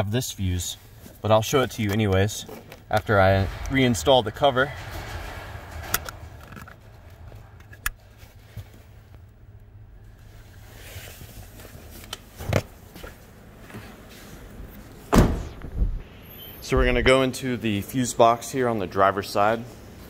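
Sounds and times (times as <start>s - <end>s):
heavy thump: 3.0s - 10.0s, 15.1s - 16.0s.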